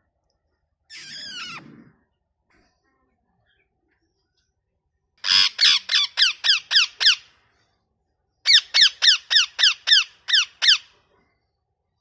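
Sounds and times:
parakeet calling: 0:00.9 - 0:01.6, 0:05.2 - 0:07.3, 0:08.4 - 0:10.9.

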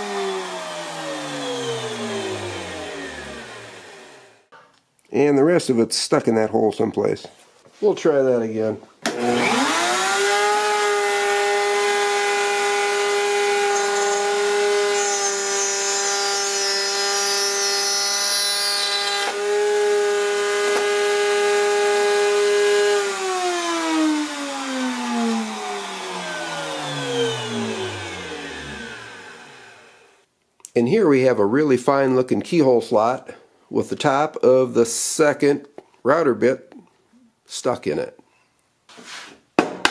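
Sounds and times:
router high whine: 0:00.0 - 0:04.5, 0:09.1 - 0:30.2
router spinning down: 0:00.0 - 0:04.5, 0:09.1 - 0:30.2.

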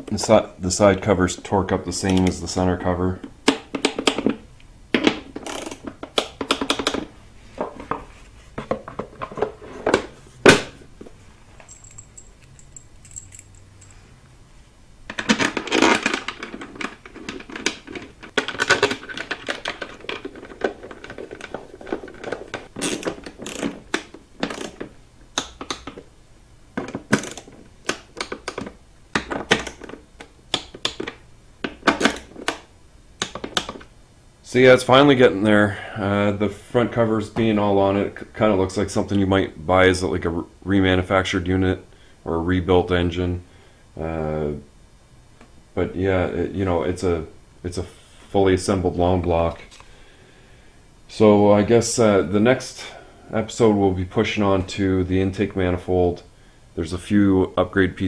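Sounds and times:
plastic covers and bolts rattling: 0:15.1 - 0:26.0.

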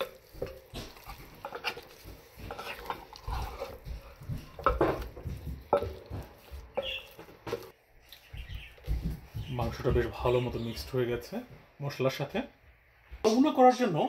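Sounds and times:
spatula scraping in wet paste: 0:00.0 - 0:10.4.

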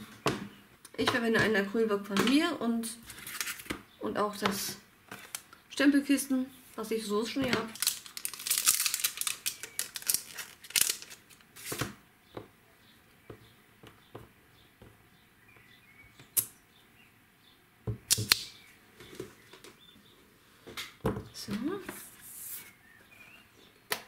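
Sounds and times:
plastic sheet crinkling: 0:03.1 - 0:03.7, 0:05.1 - 0:05.5, 0:07.4 - 0:12.0.

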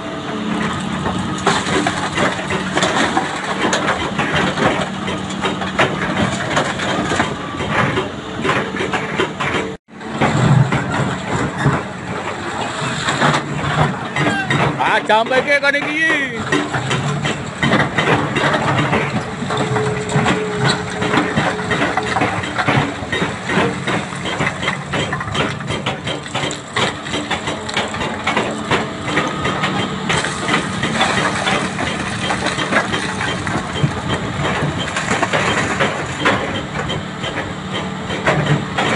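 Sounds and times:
diesel engine running under load: 0:00.0 - 0:38.9
bucket crunching through rock: 0:01.1 - 0:07.3, 0:10.1 - 0:36.6.

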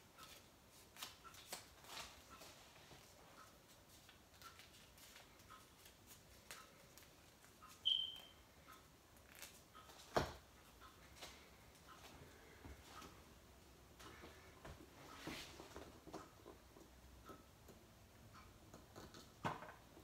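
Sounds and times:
short high squeak: 0:07.8 - 0:08.3.

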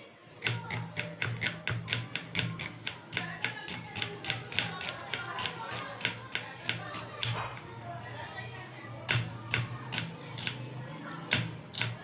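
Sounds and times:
knife tapping on wooden board: 0:00.4 - 0:07.6, 0:09.0 - 0:10.6, 0:11.3 - 0:12.0.

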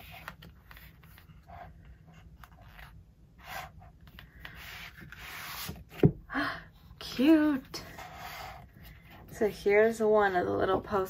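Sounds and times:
paper rustling and sliding: 0:04.1 - 0:06.1.

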